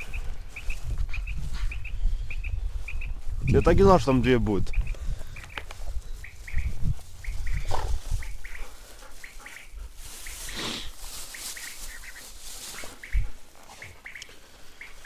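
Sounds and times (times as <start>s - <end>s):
high chirps in grass: 0.0s - 3.8s, 4.7s - 8.6s, 9.2s - 15.0s.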